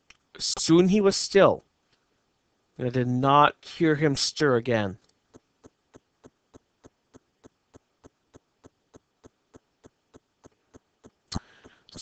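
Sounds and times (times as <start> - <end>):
faint even ticking: 5.0 - 12.0.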